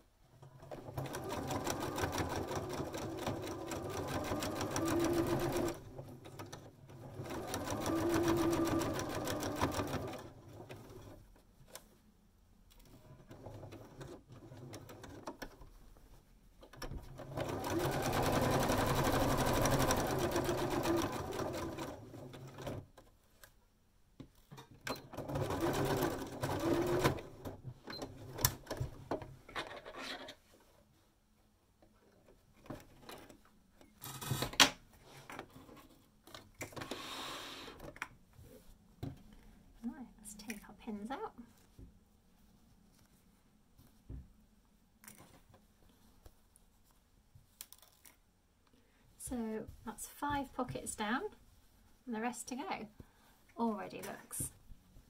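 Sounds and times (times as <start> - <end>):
sewing machine stitching: 0.4 - 11.2, 17.0 - 22.9, 24.9 - 28.9.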